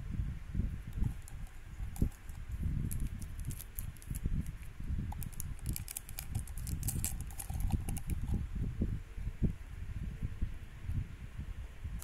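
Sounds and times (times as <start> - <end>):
wrapper crackling: 1.0 - 8.4.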